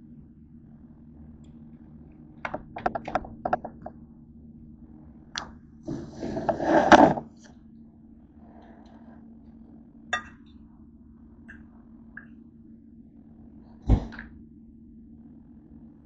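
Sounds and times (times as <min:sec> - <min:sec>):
rustling scrape: 0:05.9 - 0:07.5.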